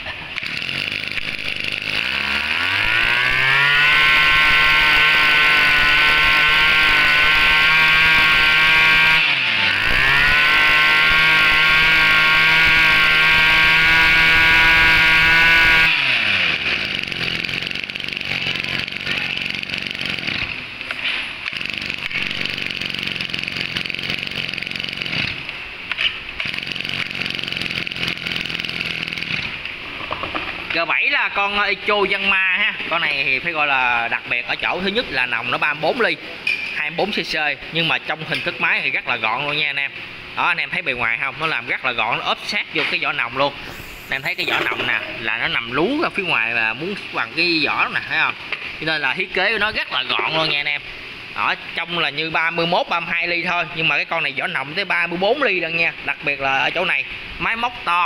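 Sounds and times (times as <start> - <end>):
brush cutter engine revving: 0.0 - 30.8, 42.7 - 50.7.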